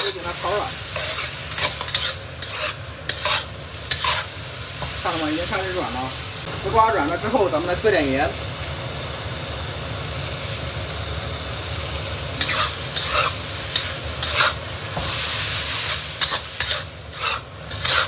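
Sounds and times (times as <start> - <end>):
spatula scraping a wok: 0.0 - 5.7, 12.4 - 18.0
pan sizzling: 0.0 - 18.0.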